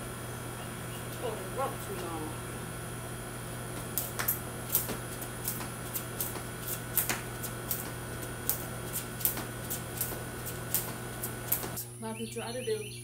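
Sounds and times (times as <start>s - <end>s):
skipping rope slapping concrete: 3.7s - 11.8s
sneakers landing: 3.7s - 11.8s.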